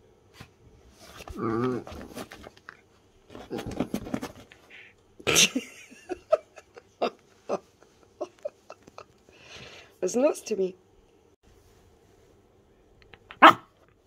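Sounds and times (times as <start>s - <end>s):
small dog grumbling and whining: 1.3s - 2.0s.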